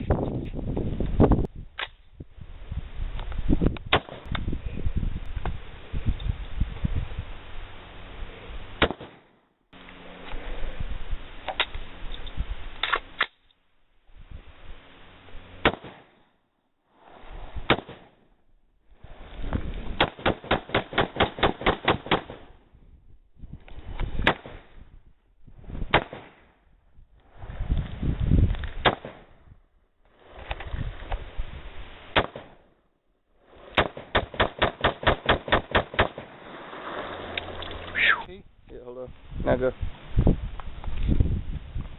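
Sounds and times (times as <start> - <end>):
rifle gunshots: 8.8 - 9.3, 20.0 - 22.5, 33.8 - 36.4.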